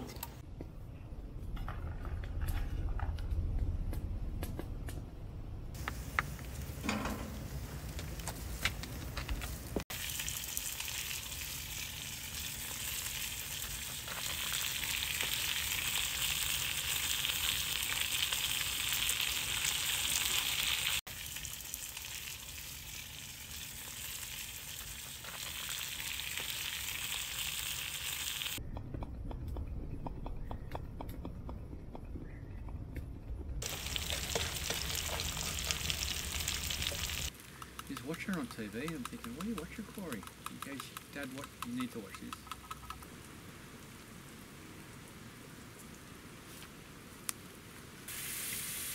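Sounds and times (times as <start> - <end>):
vegetables sizzling in a frypan: 9.9 - 28.6, 33.6 - 37.3.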